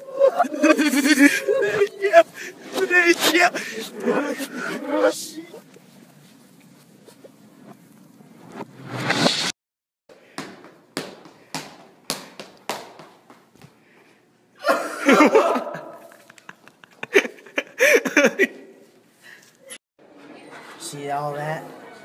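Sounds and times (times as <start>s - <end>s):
people laughing: 0.0s - 5.4s, 14.6s - 18.8s
sharp slaps: 10.4s - 13.4s.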